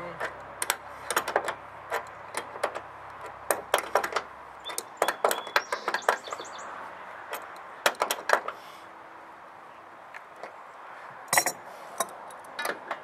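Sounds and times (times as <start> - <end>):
wrench clinking on steel: 11.3 - 12.8.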